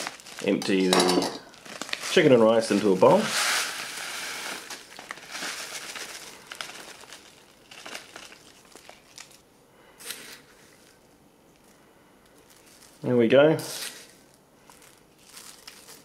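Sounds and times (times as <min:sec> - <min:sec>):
plastic pouch crinkling: 0:00.0 - 0:09.4, 0:11.6 - 0:16.0
dry grains falling into bowl: 0:02.0 - 0:05.7.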